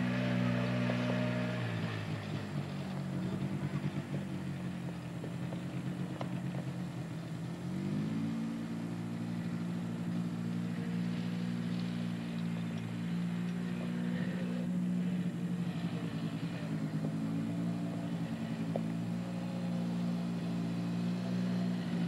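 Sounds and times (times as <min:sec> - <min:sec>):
atv engine running: 0:00.0 - 0:22.0.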